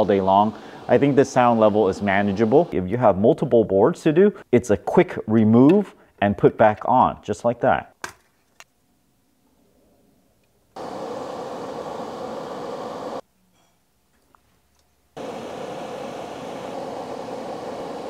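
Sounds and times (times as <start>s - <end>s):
extractor fan air rush: 0.0s - 2.8s, 10.8s - 13.2s, 15.2s - 18.0s.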